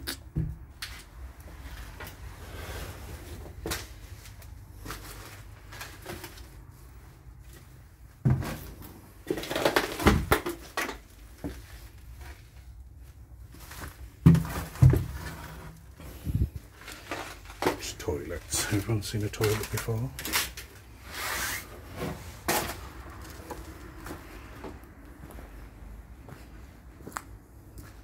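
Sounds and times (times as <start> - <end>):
bumps and scrapes: 13.4 - 24.8.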